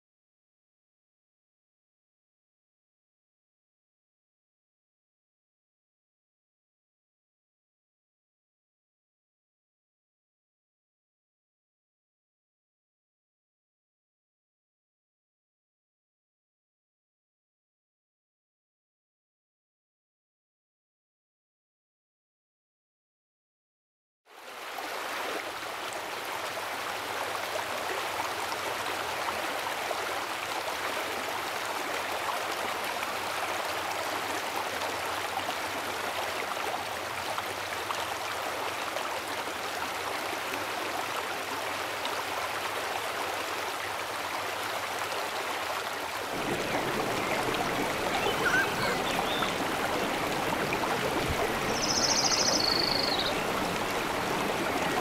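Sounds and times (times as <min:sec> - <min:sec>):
river rapids rushing: 0:42.3 - 0:55.0
high chirp: 0:48.2 - 0:49.5.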